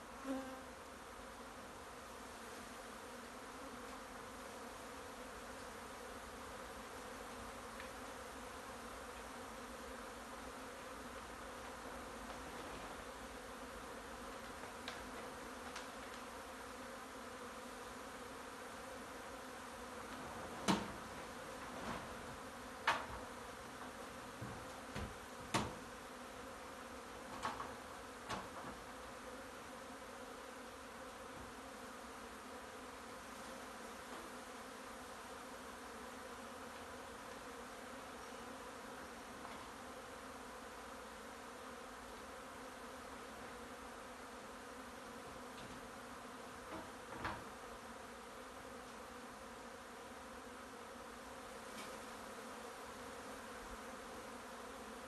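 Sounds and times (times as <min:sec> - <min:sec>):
bee swarm buzzing: 0:00.0 - 0:55.0.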